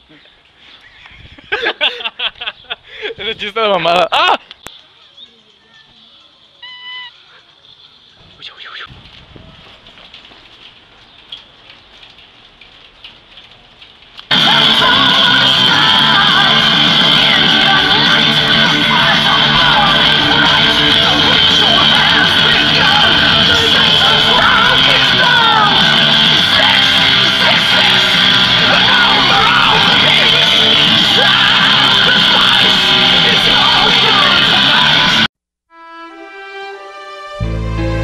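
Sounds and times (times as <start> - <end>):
loud rock music: 14.3 - 35.3.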